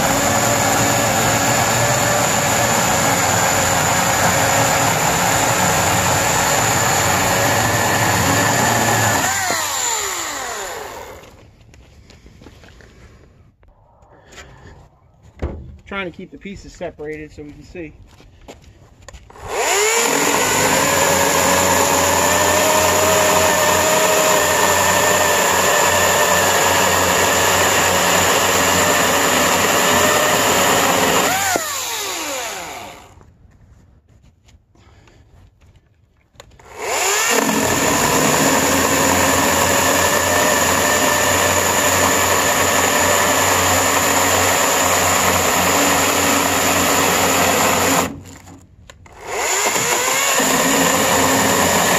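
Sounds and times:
electric chainsaw cutting wood: 0:00.0 - 0:11.4, 0:19.2 - 0:33.2, 0:36.4 - 0:51.9.

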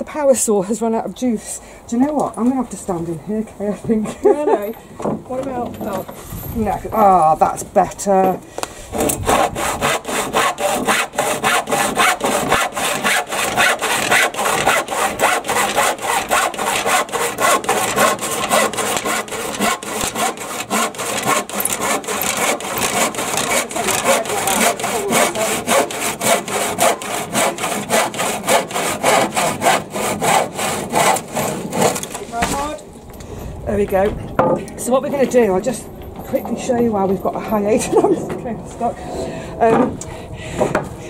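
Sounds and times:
handsaw cutting wood: 0:08.9 - 0:32.3.

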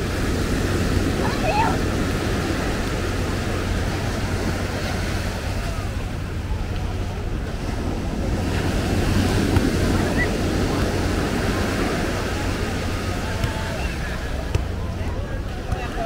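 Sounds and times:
ocean surf washing onto beach: 0:00.0 - 0:16.0.

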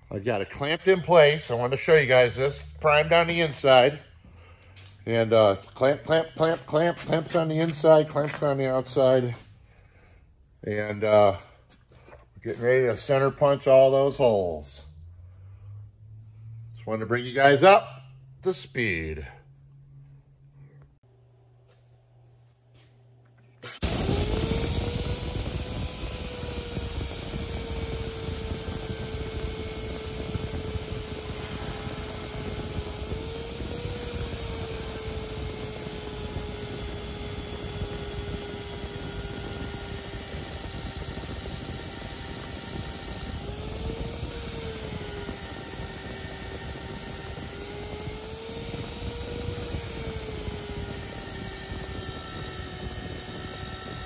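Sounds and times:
magnetic drill whining: 0:23.6 - 0:54.0.

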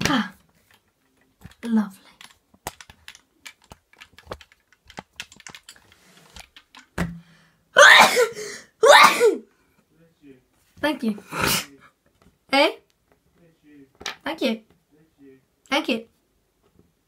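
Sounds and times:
small clicks and taps: 0:00.5 - 0:07.0
person's short vocal bursts: 0:07.8 - 0:09.4, 0:11.3 - 0:11.8.

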